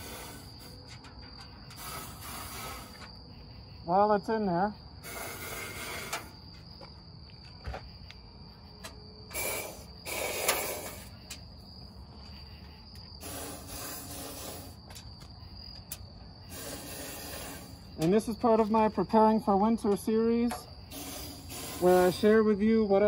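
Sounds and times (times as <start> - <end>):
aerosol can spraying: 20.9 - 22.1.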